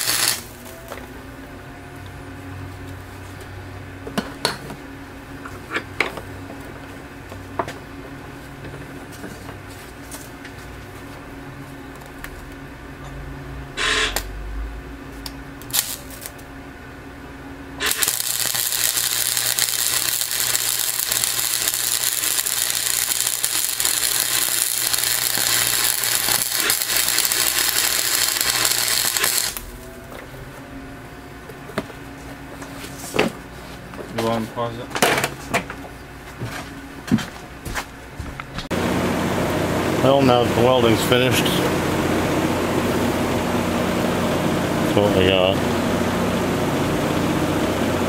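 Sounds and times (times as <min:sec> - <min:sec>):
arc welder crackling: 0:00.0 - 0:01.1, 0:13.8 - 0:14.4, 0:15.2 - 0:16.6, 0:17.8 - 0:30.1, 0:38.6 - 0:48.0
low hum: 0:10.8 - 0:32.5.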